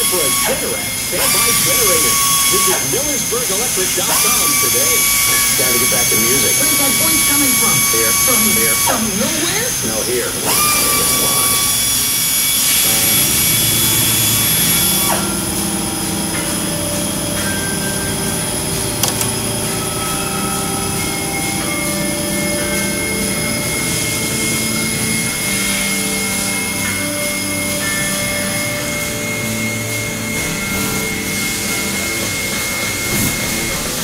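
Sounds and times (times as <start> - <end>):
coolant hiss: 0.0 - 34.0
lathe motor whine: 0.0 - 34.0
sharp click: 19.0 - 19.4.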